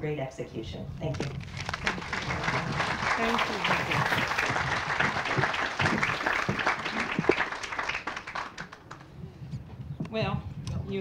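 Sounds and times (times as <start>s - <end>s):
audience applauding: 1.4s - 9.1s.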